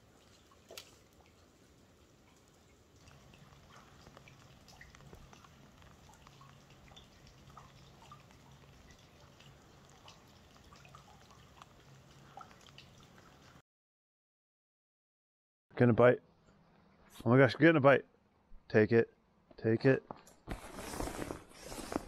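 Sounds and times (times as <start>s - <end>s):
raindrops hitting water: 0.0s - 13.6s.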